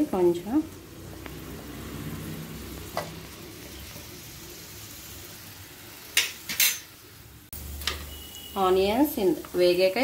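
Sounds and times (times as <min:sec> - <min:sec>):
onions sizzling in hot oil: 0:00.0 - 0:10.0
metal spoon clinking against pan: 0:06.2 - 0:07.0.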